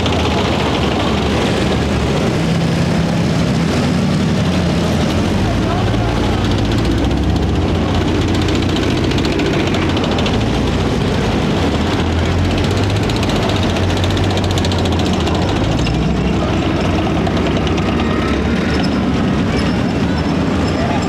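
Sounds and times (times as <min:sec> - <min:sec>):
military vehicle engines droning: 0:00.0 - 0:21.0
fast even rattle: 0:05.9 - 0:21.0.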